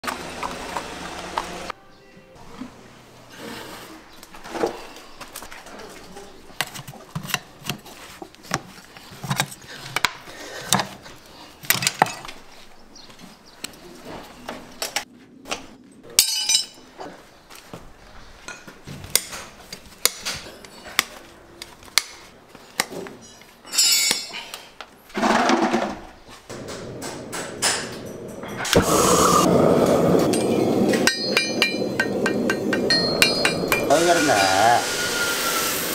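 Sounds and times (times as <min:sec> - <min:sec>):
steel tools clinking on horseshoe: 0:16.1 - 0:16.9, 0:23.2 - 0:24.7, 0:30.3 - 0:34.5.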